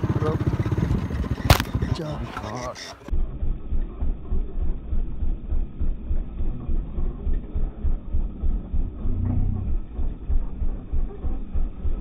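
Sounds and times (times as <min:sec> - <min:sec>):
footsteps on dirt: 0:01.4 - 0:01.8
brief low hum: 0:03.1 - 0:12.0.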